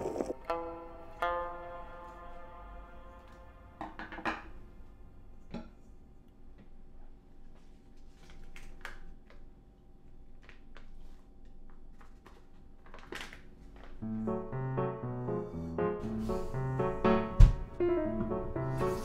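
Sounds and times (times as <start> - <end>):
plastic packet crinkling: 10.2 - 14.0.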